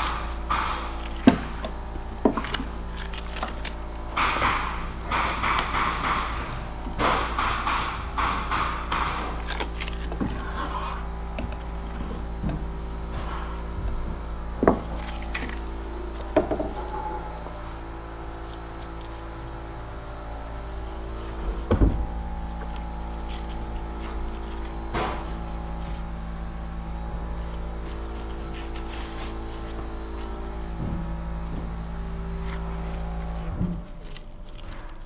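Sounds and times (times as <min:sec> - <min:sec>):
knocks and clatters of tools: 0:00.0 - 0:17.4
steady hum: 0:00.0 - 0:35.0.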